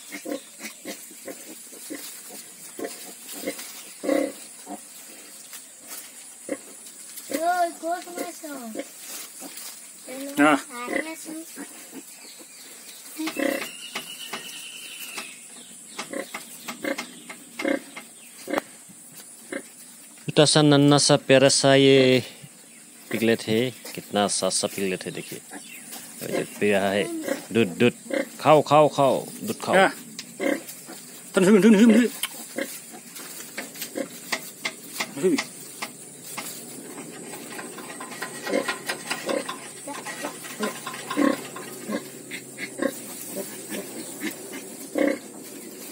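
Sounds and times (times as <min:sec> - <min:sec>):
piglets grunting and squeaking: 0:00.0 - 0:05.3, 0:06.5 - 0:07.4, 0:08.2 - 0:09.7, 0:10.3 - 0:15.3, 0:16.0 - 0:18.8, 0:25.3 - 0:28.4, 0:30.2 - 0:35.9, 0:36.8 - 0:45.8
straw rustling: 0:00.0 - 0:15.4, 0:29.1 - 0:45.9
piglet squealing: 0:13.2 - 0:14.7.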